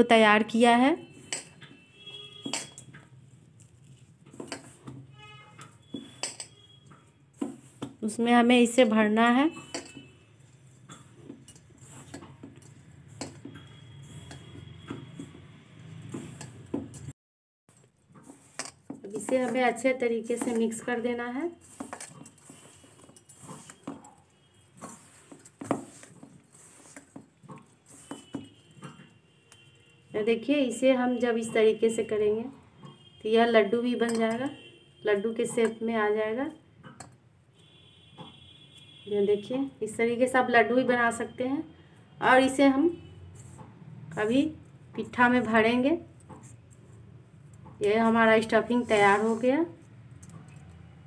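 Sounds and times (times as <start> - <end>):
hand mixing powder rustle: 3.1 - 5.1, 7.3 - 16.8, 17.7 - 28.8, 43.3 - 43.6, 48.0 - 50.0
hand rustling dry powder: 21.6 - 23.9, 24.8 - 28.2.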